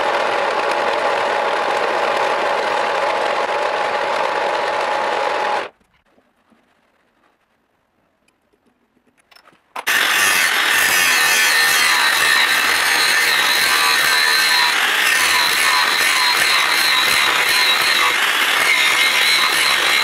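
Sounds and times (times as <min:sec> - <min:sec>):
angle grinder cutting metal: 0:09.8 - 0:20.0.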